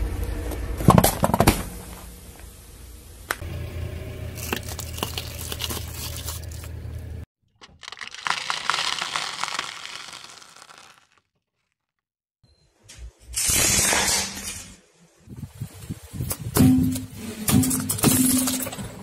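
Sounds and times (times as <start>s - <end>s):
foil crinkling: 4.4s - 12.0s
loud crunch: 4.4s - 12.1s
plastic cracking under tyre: 7.6s - 11.8s.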